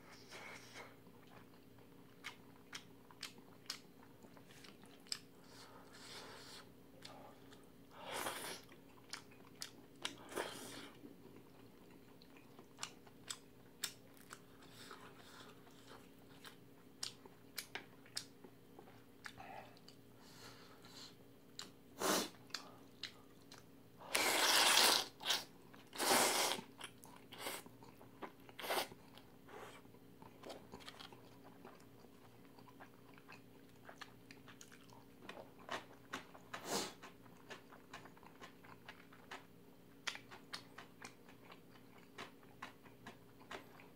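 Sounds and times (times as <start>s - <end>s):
chewing and mouth clicks: 1.2s - 5.6s, 8.4s - 20.0s, 22.4s - 23.7s, 26.8s - 43.9s
slurping noodles: 24.1s - 26.7s.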